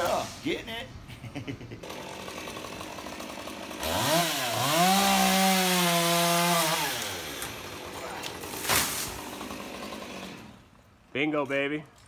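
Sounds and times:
chainsaw revving and cutting wood: 1.8 - 10.7.

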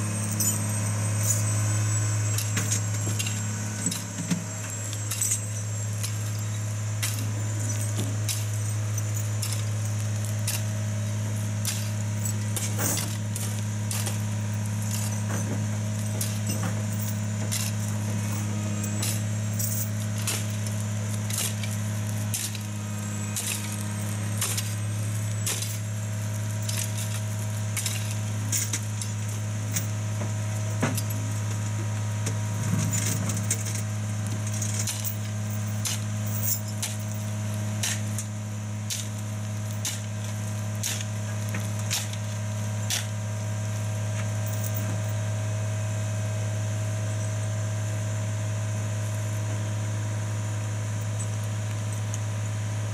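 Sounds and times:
metal tracks clanking: 0.0 - 38.3
diesel engine running: 0.0 - 52.9.

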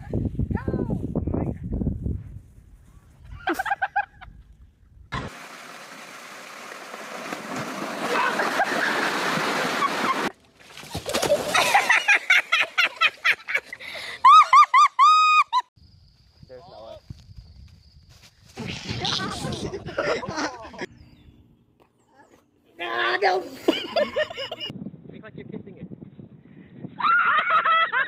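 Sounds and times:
water splashing and rushing: 5.1 - 12.8.

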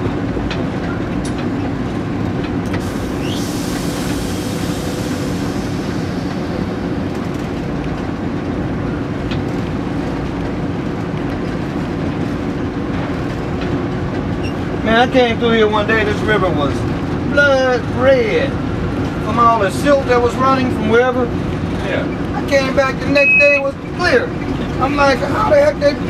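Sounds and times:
locomotive engine drone: 0.0 - 26.0
high squeal: 3.1 - 7.4.

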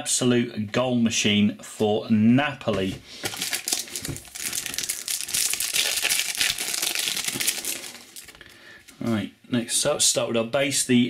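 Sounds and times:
foil wrapper crinkling: 3.2 - 8.5.

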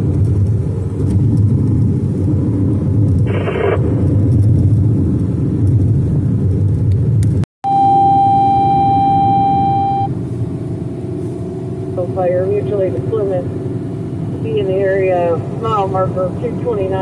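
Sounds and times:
car driving rumble inside cabin: 0.0 - 17.0
steady electronic tone: 7.6 - 10.2.

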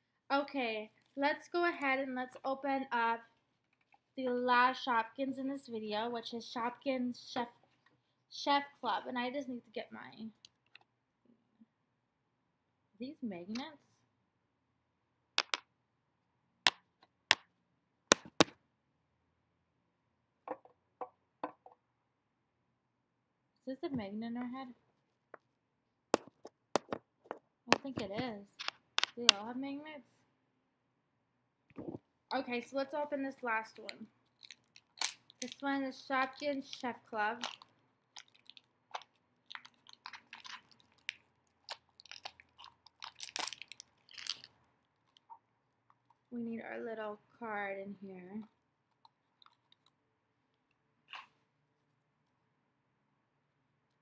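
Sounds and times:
plastic wrapper crinkling: 34.3 - 45.3.

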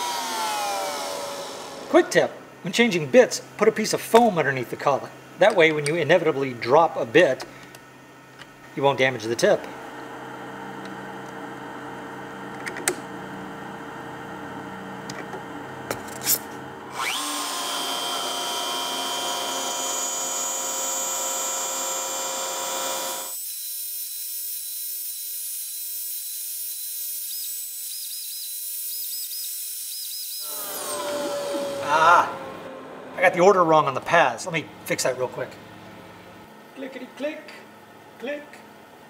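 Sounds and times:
router spindle whine: 0.0 - 2.2, 16.9 - 23.5, 29.5 - 34.2.

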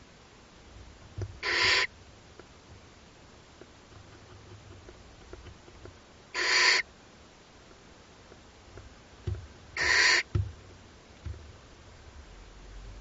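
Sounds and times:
owl chicks hissing: 1.4 - 1.9, 6.3 - 6.9, 9.7 - 10.4
soft low thumps: 8.7 - 13.0.

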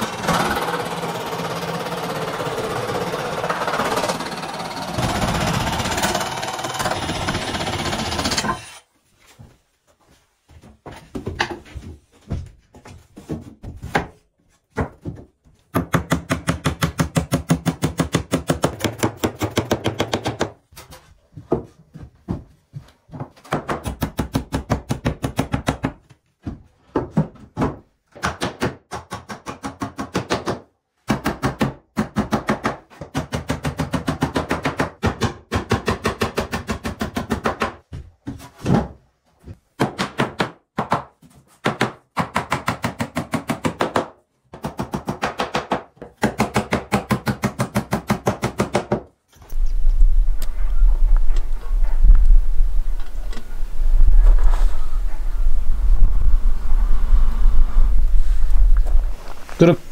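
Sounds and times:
hammer tapping nails into wood: 15.7 - 20.6.

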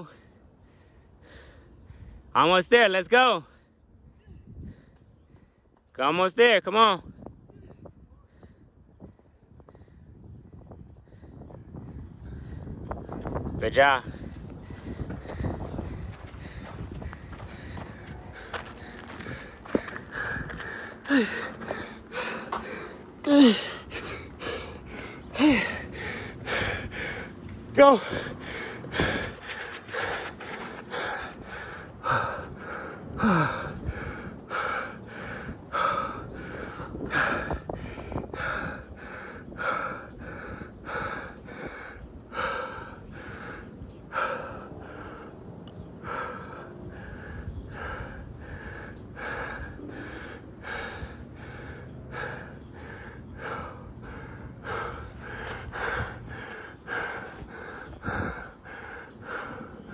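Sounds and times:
person breathing hard: 0.0 - 2.3, 14.0 - 59.9.

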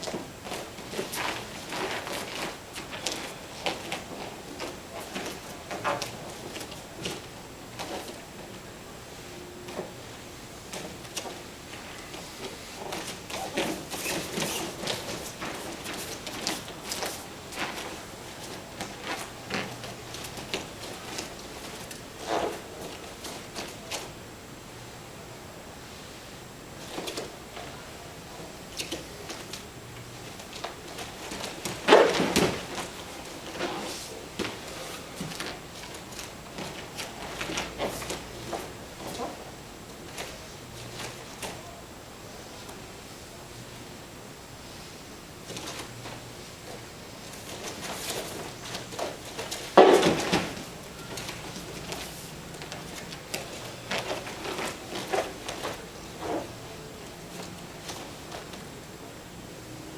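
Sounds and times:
bare feet shuffling on mat: 0.0 - 8.6, 10.7 - 24.2, 28.4 - 41.7, 45.4 - 58.8
body thumping on foam mat: 30.6 - 33.8, 47.4 - 55.8
body thudding onto gym mat: 49.3 - 50.7.

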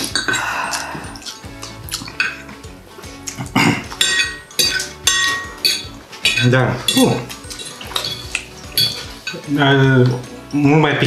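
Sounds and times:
background music: 0.0 - 11.0
forks clinking on plates: 3.2 - 10.2.

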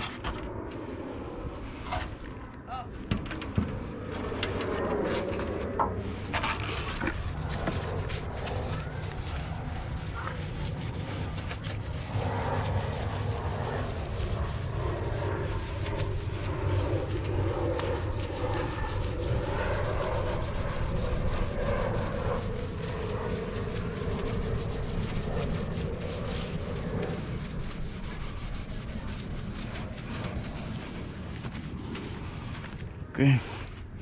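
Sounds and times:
steady low rumble: 0.0 - 34.0
sponge rubbing metal panel: 6.3 - 32.7.

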